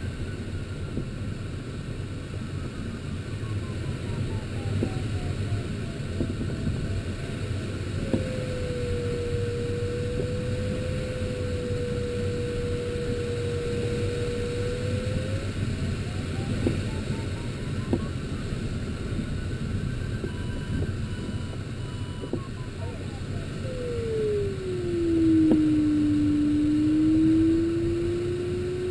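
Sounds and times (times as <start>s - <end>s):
cockpit airflow noise: 0.9s - 28.9s
variometer beeps and tone: 8.1s - 28.9s.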